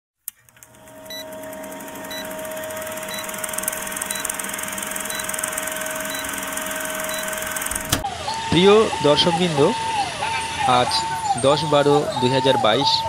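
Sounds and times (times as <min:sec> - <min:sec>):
film projector clattering: 0:00.3 - 0:08.0
short high beep: 0:05.1 - 0:07.7.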